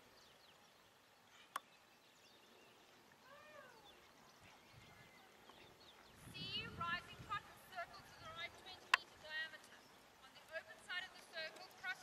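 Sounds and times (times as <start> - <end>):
faint rising and falling animal call: 3.2 - 4.0.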